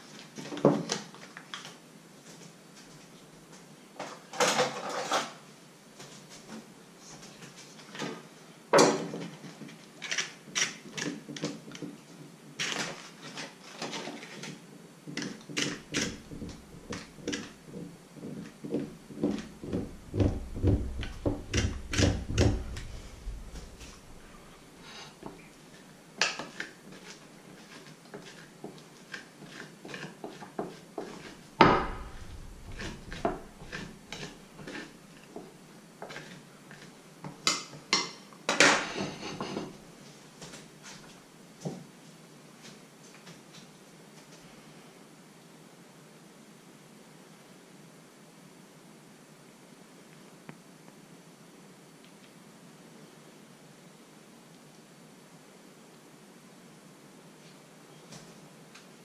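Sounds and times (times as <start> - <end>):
knife scraping butter on bread: 15.2 - 24.6, 26.4 - 35.4, 36.0 - 37.0.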